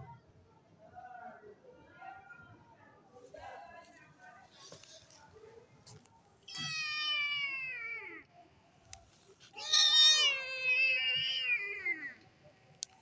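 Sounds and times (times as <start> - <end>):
kitten meowing: 6.5 - 7.6, 9.6 - 12.0.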